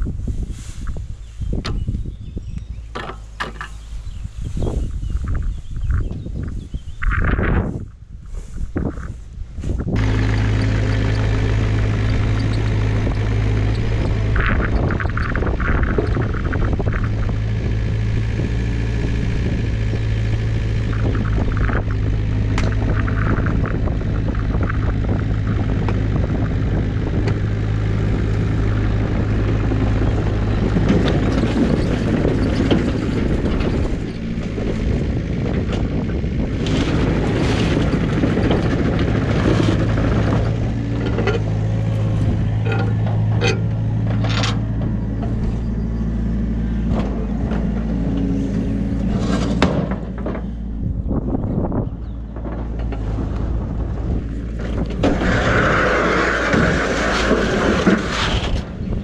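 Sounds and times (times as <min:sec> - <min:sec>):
diesel engine droning: 0:00.0 - 0:59.0
metallic clanks and knocks: 0:02.9 - 0:03.8, 0:42.6 - 0:45.5.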